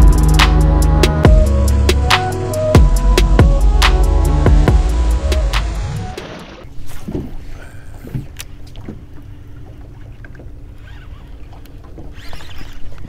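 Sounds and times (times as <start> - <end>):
low rumble: 0.0 - 6.7
water against boat hull: 6.2 - 13.0.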